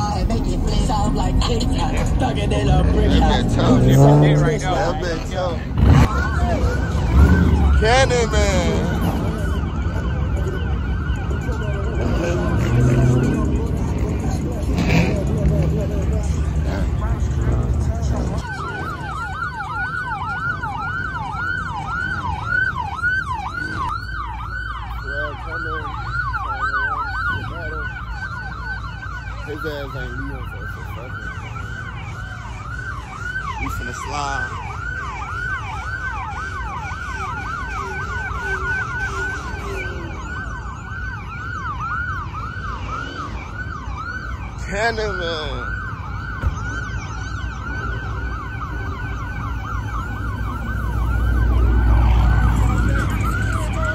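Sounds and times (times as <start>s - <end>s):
police siren yelping: 0.0s - 53.9s.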